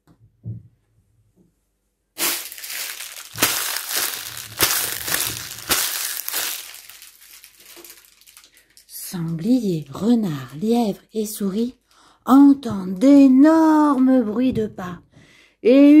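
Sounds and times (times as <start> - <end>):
footsteps crunching in snow: 2.2 - 8.0.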